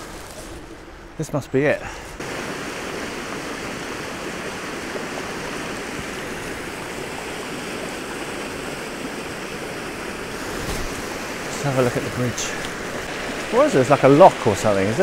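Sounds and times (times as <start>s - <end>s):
river water rushing over weir: 2.1s - 15.0s.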